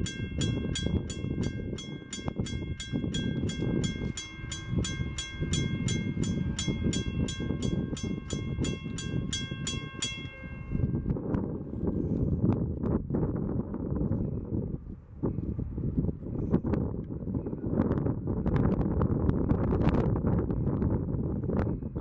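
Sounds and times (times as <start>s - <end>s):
railroad crossing bell ringing: 0.0s - 11.6s
freight train rumbling: 0.0s - 13.9s.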